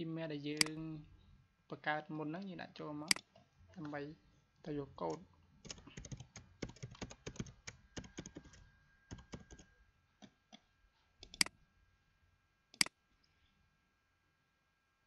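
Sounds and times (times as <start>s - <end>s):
keyboard typing: 5.0s - 10.4s, 11.2s - 11.5s.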